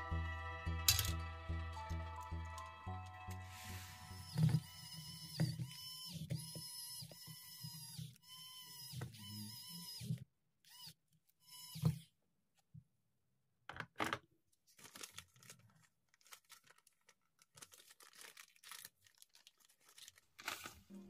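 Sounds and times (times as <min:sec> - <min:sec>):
plastic wrapping crinkling: 0:14.7 - 0:21.0.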